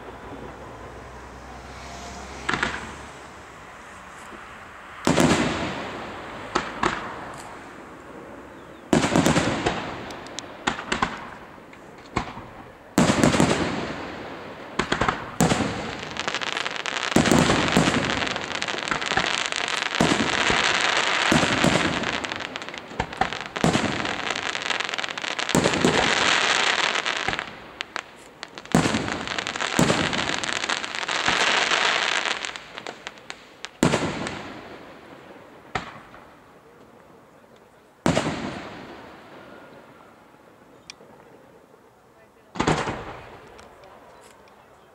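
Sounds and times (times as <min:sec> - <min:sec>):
fireworks crackle: 0:01.8 - 0:41.4
firework shells bursting: 0:14.8 - 0:34.5.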